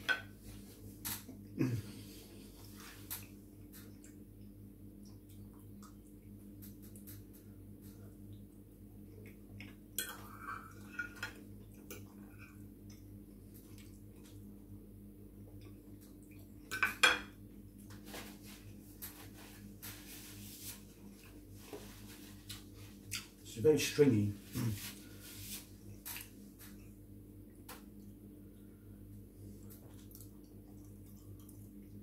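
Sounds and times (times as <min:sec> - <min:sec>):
chewing: 0:29.6 - 0:32.0.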